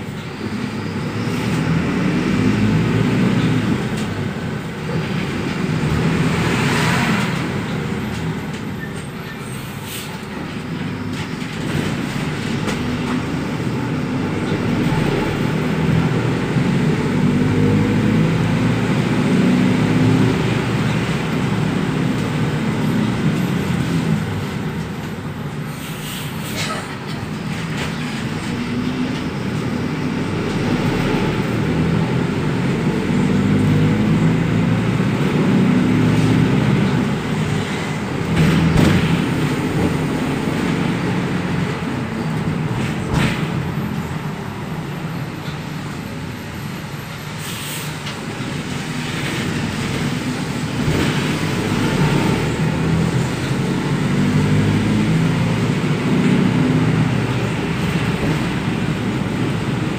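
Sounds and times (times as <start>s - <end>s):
minibus diesel engine running: 0.0s - 59.9s
bus body knocks and rattles: 37.8s - 40.8s, 42.2s - 43.8s.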